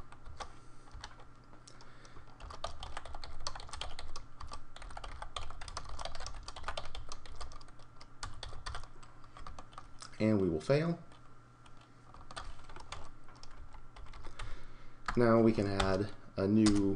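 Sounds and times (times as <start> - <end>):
typing on keyboard: 2.2 - 9.9, 11.7 - 14.4.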